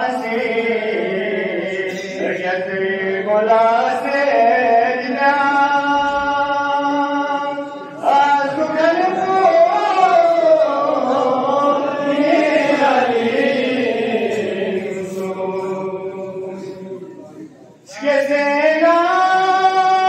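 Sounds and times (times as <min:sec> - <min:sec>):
man chanting: 0:00.0 - 0:20.0.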